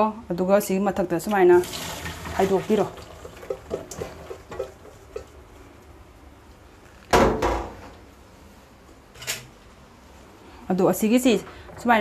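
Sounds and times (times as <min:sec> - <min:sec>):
metal bowl clunk: 0:03.3 - 0:05.3.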